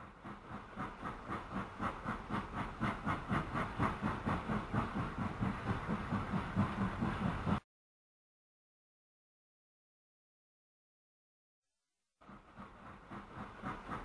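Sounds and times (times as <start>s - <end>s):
model train running past: 0.0s - 7.6s, 12.2s - 14.0s.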